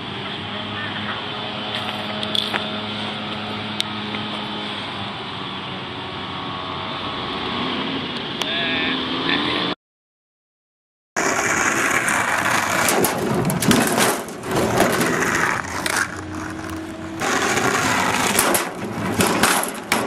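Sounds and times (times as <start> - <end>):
skateboard rolling on pavement: 0.0 - 8.3, 11.2 - 20.0
skateboard clacks and knocks: 11.2 - 20.0.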